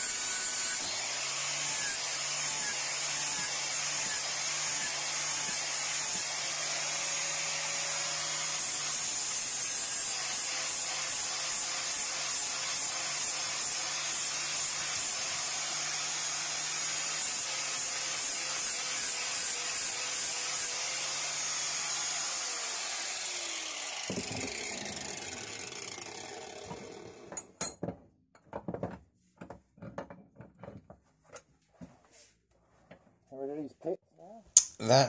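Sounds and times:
angle grinder grinding metal: 0.0 - 27.4
grinder winding down: 17.2 - 27.4.

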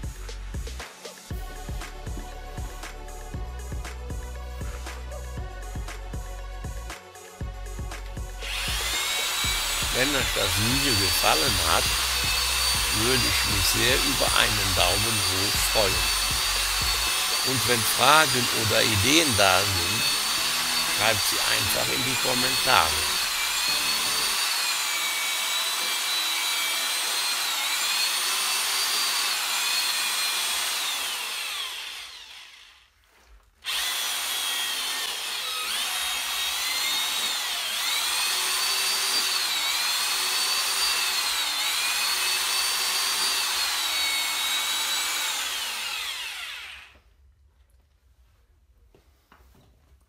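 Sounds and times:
electric drill mixing pulp: 8.0 - 47.1.

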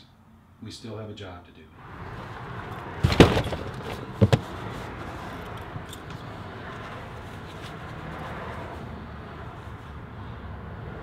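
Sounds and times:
outdoor background hum: 1.8 - 11.0
clattering knocks in car hatch: 3.0 - 4.6.

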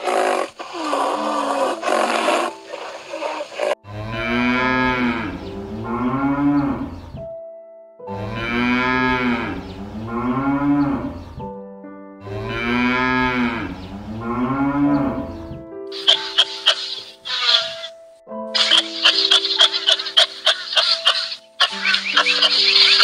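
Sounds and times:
cattle mooing: 0.0 - 6.9
faint background music: 0.0 - 23.0.

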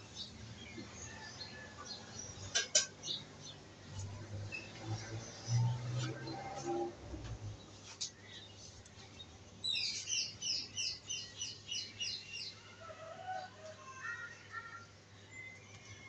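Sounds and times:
songbird chirping: 7.5 - 16.0.

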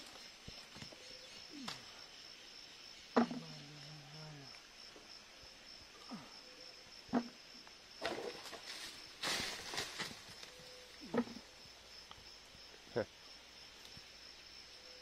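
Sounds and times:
high-pitched insect chorus: 0.0 - 15.0.

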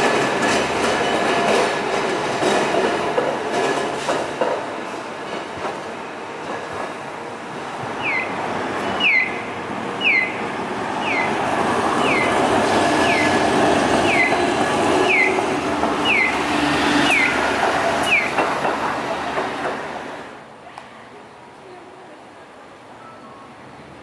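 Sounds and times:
tram rumbling past: 0.0 - 20.6
crossing signal chirps: 11.0 - 11.4, 14.0 - 14.4, 16.0 - 16.4.

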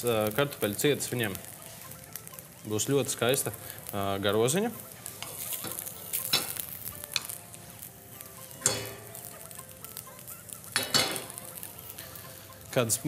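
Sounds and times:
tofu sizzling in frying pan: 0.0 - 13.0
utensil tapping a pan: 5.2 - 7.4, 8.6 - 9.3, 10.8 - 11.4.

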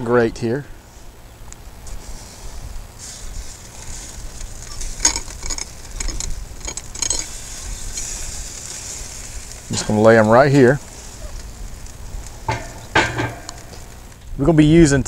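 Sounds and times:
meat sizzling on charcoal: 0.3 - 15.0
metal hooks clicking on grate: 4.7 - 8.2.

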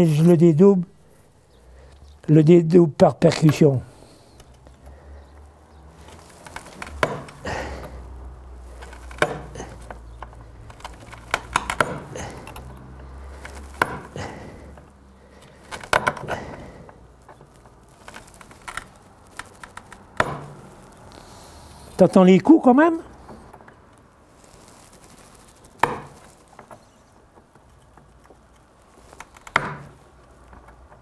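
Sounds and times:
sharp taps knapping flint: 6.0 - 8.0, 8.6 - 22.0, 23.4 - 31.0.

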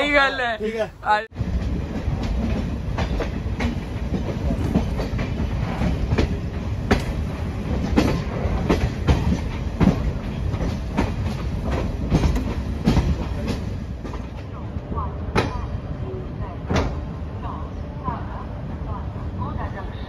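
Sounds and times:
train rumbling on track: 0.0 - 20.0
wheels clacking over rail joints: 1.4 - 14.5.

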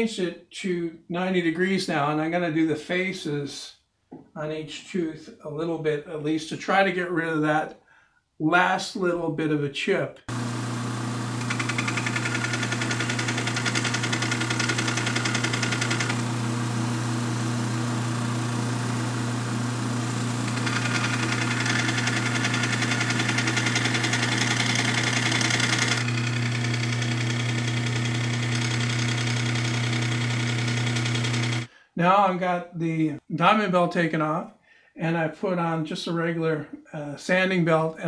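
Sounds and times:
belt sander grinding metal: 10.3 - 31.7.

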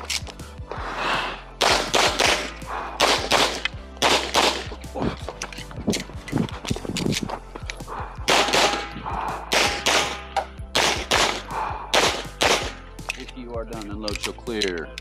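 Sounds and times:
pistol shots: 1.6 - 4.7, 8.3 - 12.8.

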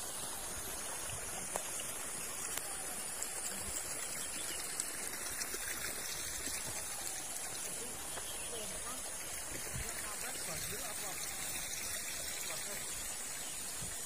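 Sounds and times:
water flowing: 0.0 - 14.0.

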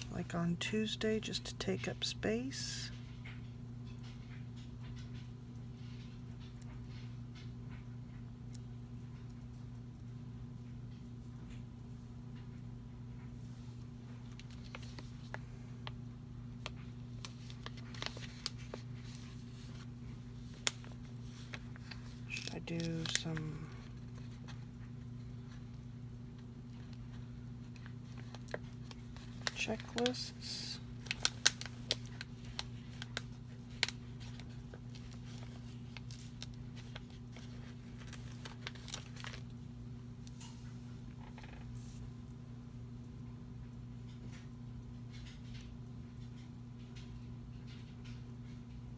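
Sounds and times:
steady low hum: 0.0 - 48.9
paper rustling: 14.4 - 15.4, 16.7 - 24.6, 27.8 - 39.4.

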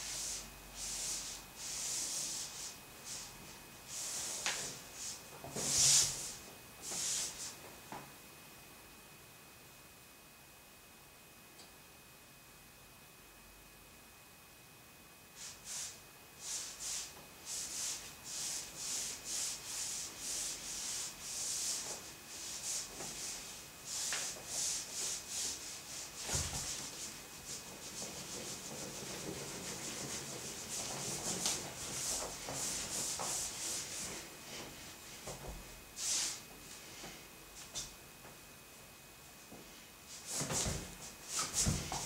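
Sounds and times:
hissing rubbing strokes: 0.0 - 3.3, 3.9 - 7.5, 15.4 - 34.2.

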